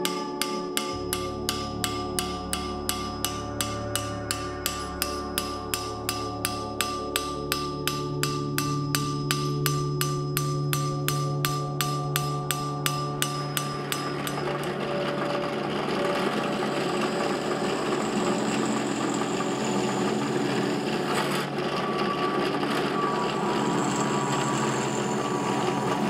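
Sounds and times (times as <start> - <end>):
drill press boring through steel: 11.4 - 26.0.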